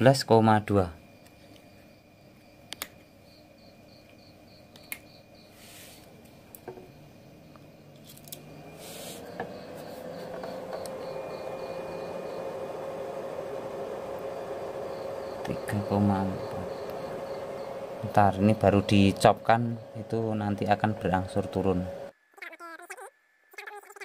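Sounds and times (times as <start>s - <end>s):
battery charger hum: 0.8s - 22.1s.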